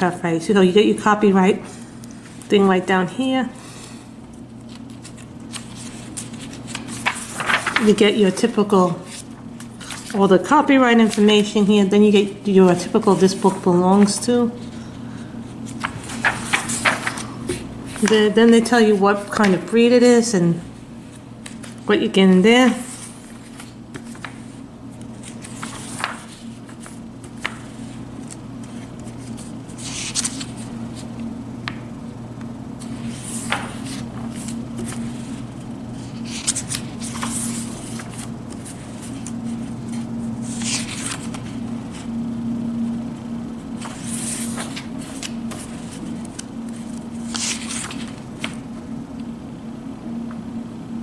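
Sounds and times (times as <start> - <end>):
steady low hum: 0.0 - 51.0
pages turning with papery swish: 4.7 - 8.0, 9.0 - 10.2, 15.6 - 17.3, 22.8 - 24.4, 25.0 - 31.2, 32.8 - 35.4, 36.0 - 42.1, 43.8 - 48.6.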